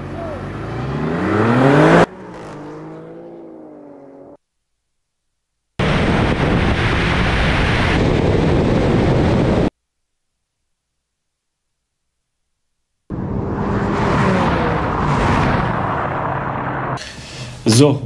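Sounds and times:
car engine at speed: 0.0s - 4.4s, 13.1s - 17.0s
car engines revving at launch: 0.0s - 4.4s, 13.1s - 17.0s
rushing wind: 5.8s - 9.7s, 13.1s - 17.4s.

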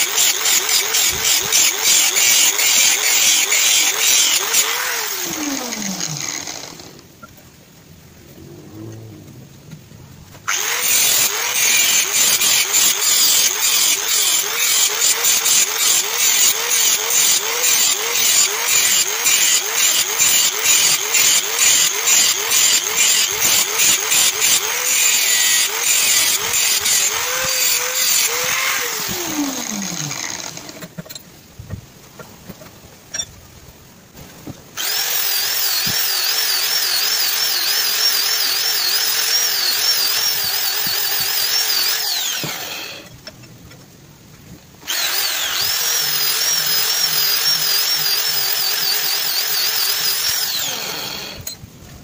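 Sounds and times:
angle grinder grinding steel: 0.0s - 7.0s, 10.5s - 31.0s, 34.8s - 43.1s, 44.9s - 51.6s
grinder spinning down whine: 0.0s - 7.1s, 8.2s - 9.8s, 10.5s - 31.0s, 34.8s - 43.1s, 44.9s - 51.6s.

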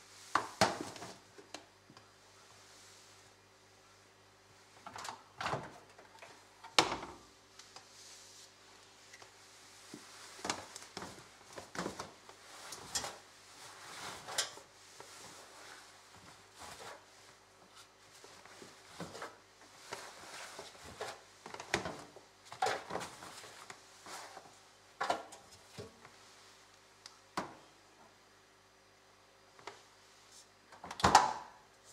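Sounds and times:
fabric rustling: 7.8s - 21.4s.

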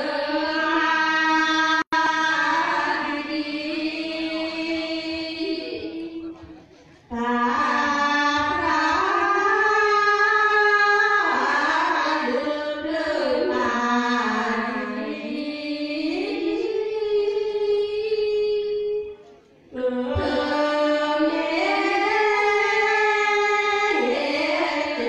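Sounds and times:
women singing together: 0.0s - 25.0s.

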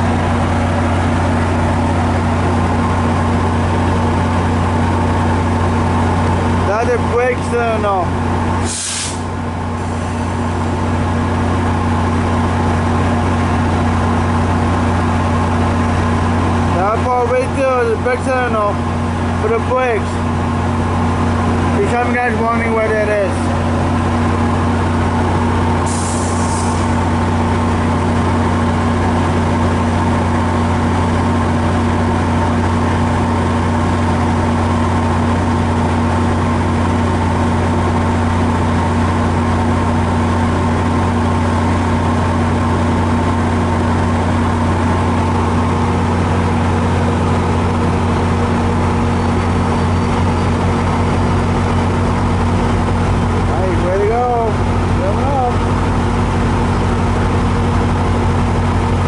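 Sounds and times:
diesel locomotive idling: 0.0s - 59.0s
short high hiss: 8.6s - 9.3s, 25.9s - 27.0s.

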